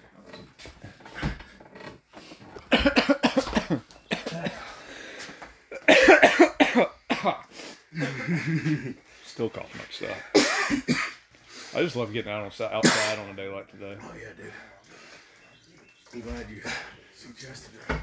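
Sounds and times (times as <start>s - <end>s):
person coughing wetly: 2.7s - 4.7s, 5.7s - 8.7s, 10.3s - 11.2s, 12.8s - 13.2s.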